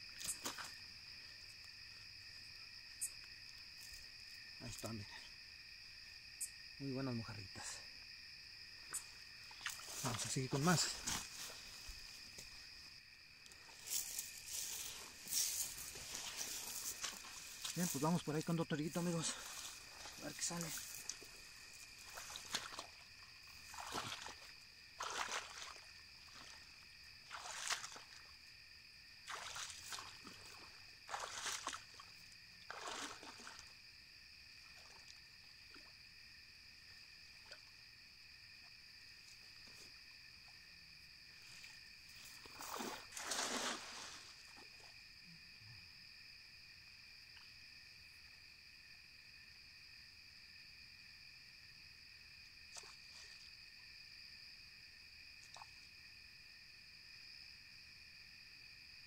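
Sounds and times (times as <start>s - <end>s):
night insects trilling: 0.0s - 59.0s
rustling: 13.6s - 18.0s.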